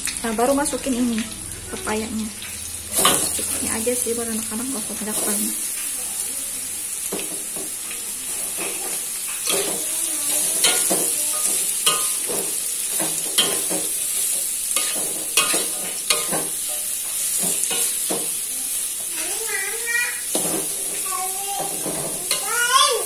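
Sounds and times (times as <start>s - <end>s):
food sizzling in oil: 0.0s - 23.0s
spatula scraping pan: 2.9s - 5.8s, 7.1s - 18.4s, 20.2s - 23.0s.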